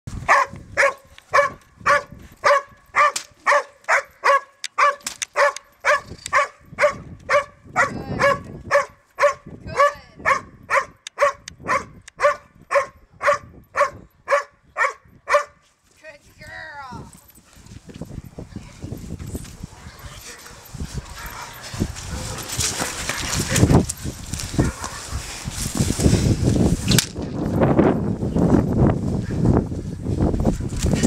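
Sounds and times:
dog barking: 0.3s - 15.6s, 19.7s - 23.6s, 24.6s - 25.2s.

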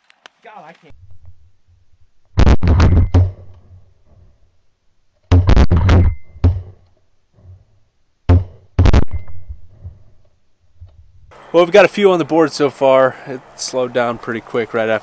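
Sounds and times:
shotgun shots: 2.4s - 3.3s.

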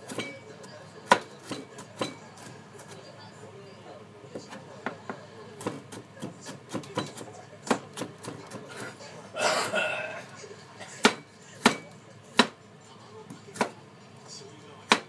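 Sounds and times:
knife tapping cutting board: 1.1s - 2.2s.

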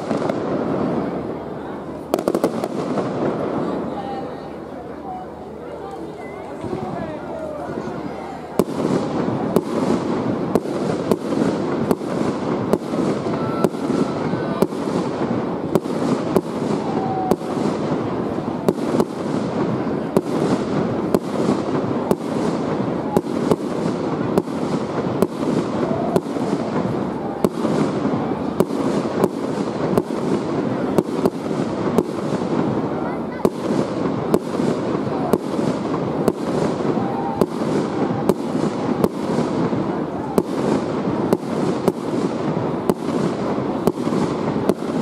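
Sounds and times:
continuous background din: 0.0s - 45.0s
firework shells bursting: 2.1s - 3.7s.

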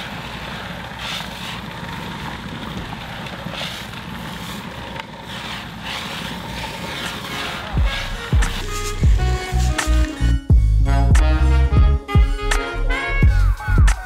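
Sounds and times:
garment steamer hum and hiss: 0.0s - 10.1s.

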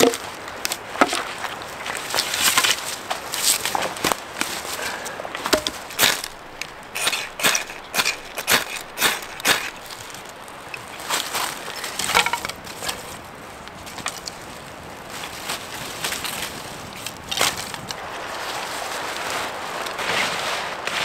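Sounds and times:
bark crackling as it burns: 5.3s - 21.0s.

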